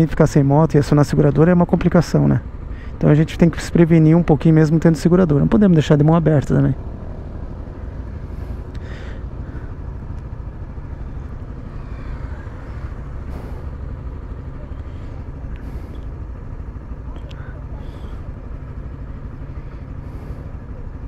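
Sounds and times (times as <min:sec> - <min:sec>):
motorcycle engine idling: 0:00.0 - 0:21.0
traffic swishing past: 0:04.7 - 0:21.0.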